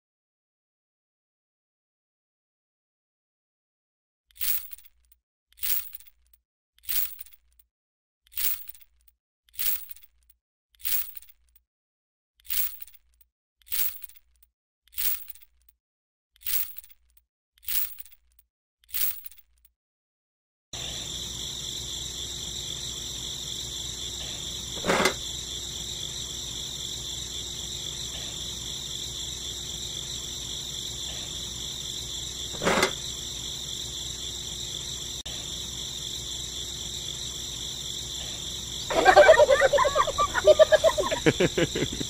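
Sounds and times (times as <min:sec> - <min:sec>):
insects chirping: 0:20.8 - 0:42.0.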